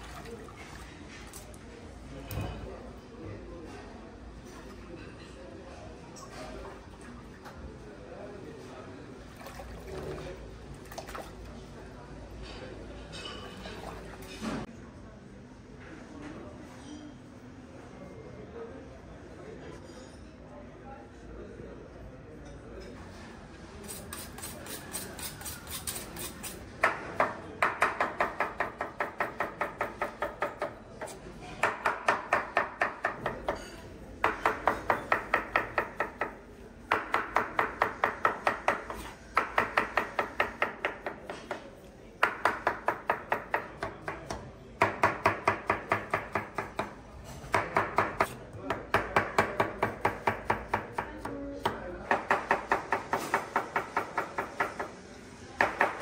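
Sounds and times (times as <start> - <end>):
knife chopping on cutting board: 42.2 - 54.9.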